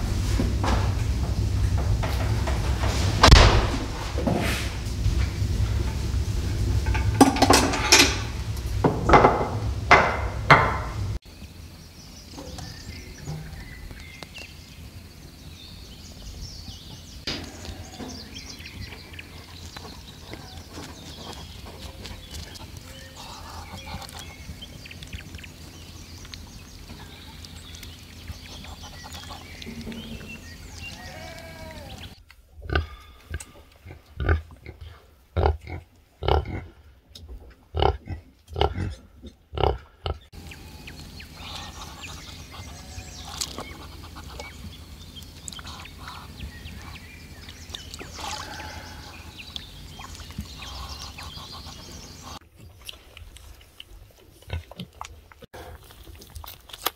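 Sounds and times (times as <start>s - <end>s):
low steady rumble: 0.0s - 35.2s, 40.2s - 52.4s
faint calls: 16.1s - 32.2s, 39.6s - 52.4s.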